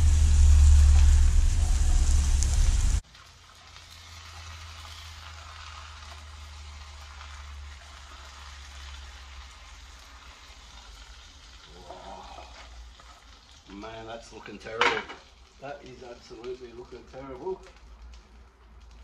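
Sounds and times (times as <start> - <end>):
low steady hum: 0.0 - 3.0
omelette sizzling in a frying pan: 0.0 - 19.0.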